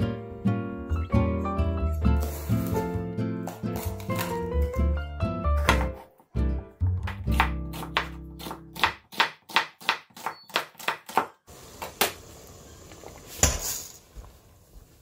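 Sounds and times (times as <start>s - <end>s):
knife chopping on wooden board: 5.6s - 6.2s, 7.0s - 11.3s.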